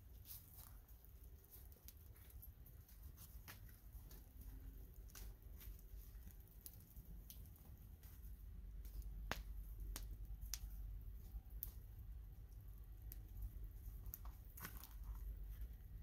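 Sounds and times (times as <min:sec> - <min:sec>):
campfire crackling and popping: 0:00.3 - 0:16.0
low steady rumble: 0:03.7 - 0:16.0.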